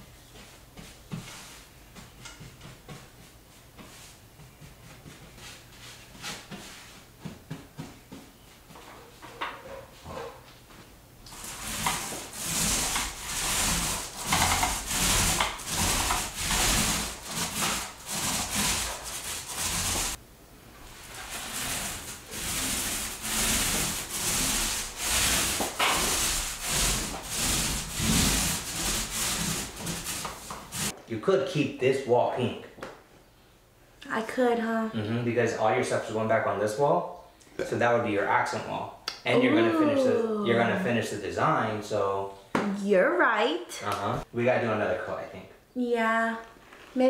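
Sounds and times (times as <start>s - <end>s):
paint roller rolling on wall: 0.3s - 31.0s, 46.3s - 47.0s
faint brush strokes: 20.8s - 31.0s.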